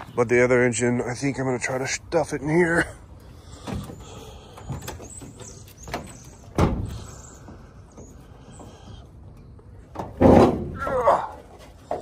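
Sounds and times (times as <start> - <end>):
dull thumps: 4.6 - 8.8.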